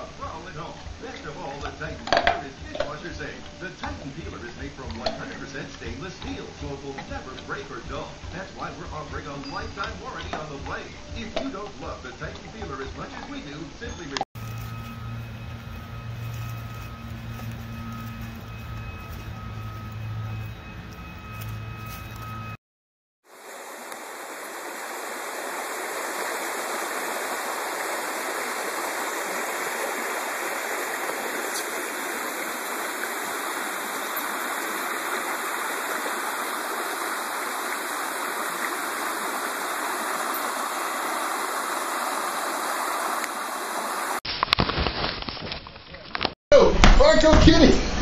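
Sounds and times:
stream water flowing: 23.2 - 44.2.

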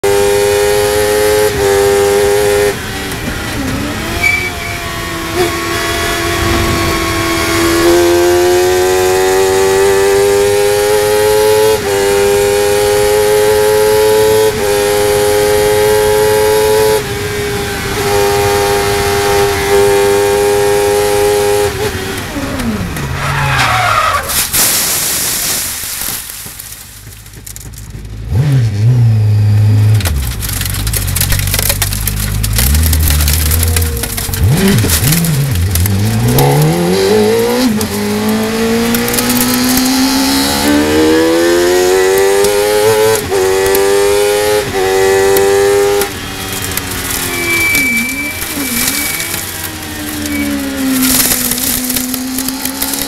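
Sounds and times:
racing car engine at full throttle: 0.0 - 24.2, 27.5 - 53.0
tyres skidding on gravel: 21.8 - 29.0, 29.8 - 53.0.

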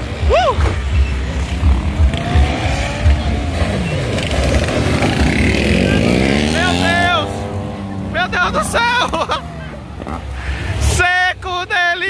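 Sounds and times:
motorcycle engines revving: 0.0 - 11.4.

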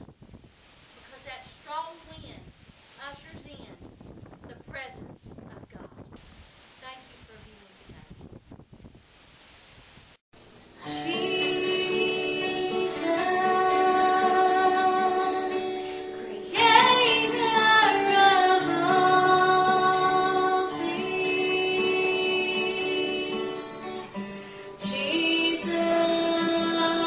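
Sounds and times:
strummed acoustic guitar: 10.4 - 27.0
woman singing: 10.8 - 27.0.

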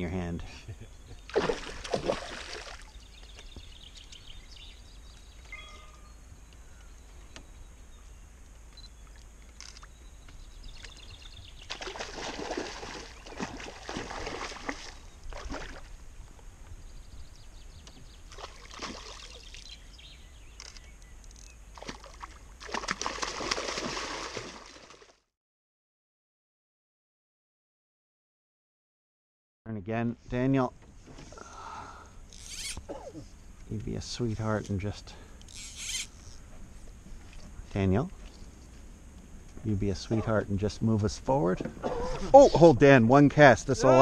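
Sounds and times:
fish splashing water: 1.3 - 2.9, 11.6 - 15.9, 18.3 - 19.7, 21.8 - 25.2.

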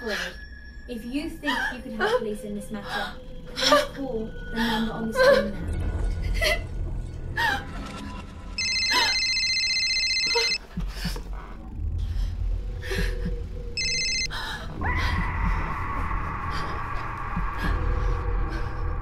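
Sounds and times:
phone ringtone trilling: 8.6 - 10.6, 13.8 - 14.3.

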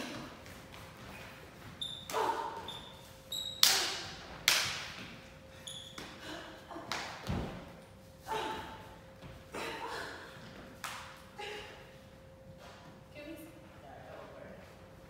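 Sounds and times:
sneakers squeaking on floor: 1.0 - 4.2, 5.5 - 6.2.

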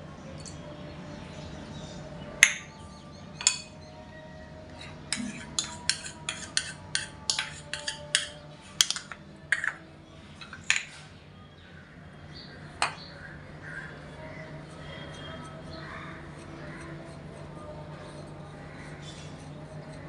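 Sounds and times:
metal spoon clinking on glass: 3.4 - 3.8, 5.1 - 9.8.

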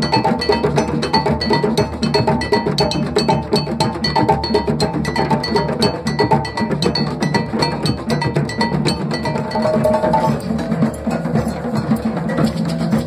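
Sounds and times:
drum circle playing: 0.0 - 13.0
high ringing bell-like stroke: 8.6 - 10.9.

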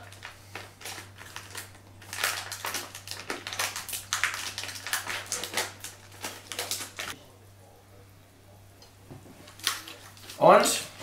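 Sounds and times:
plastic food tray crinkling: 0.0 - 7.2.

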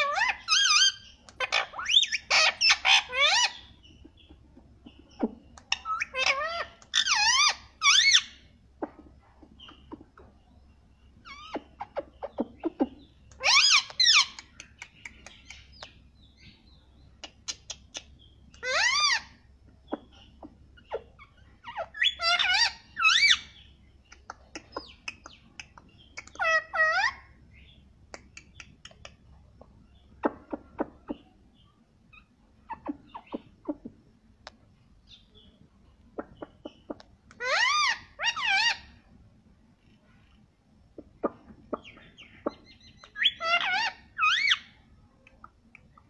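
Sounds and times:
parakeet calling: 0.0 - 9.0, 11.2 - 16.6, 17.2 - 29.2, 30.1 - 33.9, 36.2 - 39.0, 41.0 - 44.8
parakeet clicks and chirps: 5.2 - 7.3, 11.5 - 16.1, 24.0 - 26.9, 28.1 - 29.2.

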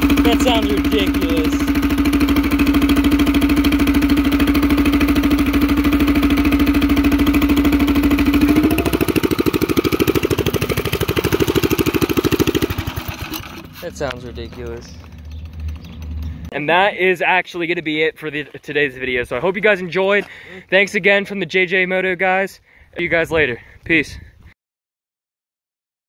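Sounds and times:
small engine idling: 0.0 - 16.5.

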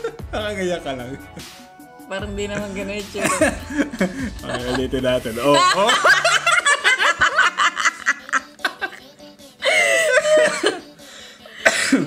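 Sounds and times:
man and woman laughing: 0.0 - 0.4, 2.6 - 11.0
short cough: 11.6 - 12.0.

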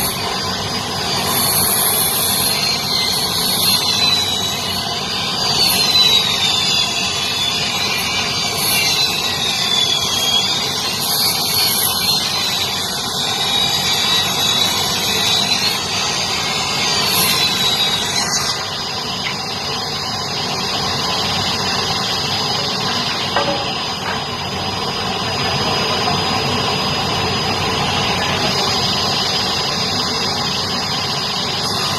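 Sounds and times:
circular saw cutting wood: 0.0 - 31.9
high whine: 0.0 - 31.9
steady machine noise: 0.0 - 31.9.

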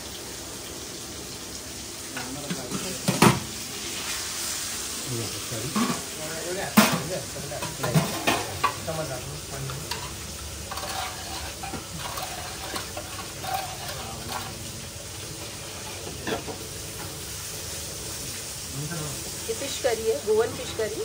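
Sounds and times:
steady hiss: 0.0 - 21.0
ladle stirring a pot: 5.7 - 6.2, 6.8 - 8.9, 9.5 - 17.2.

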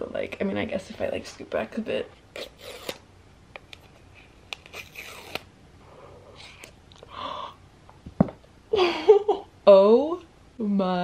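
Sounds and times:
breathy gasp: 5.9 - 7.6.

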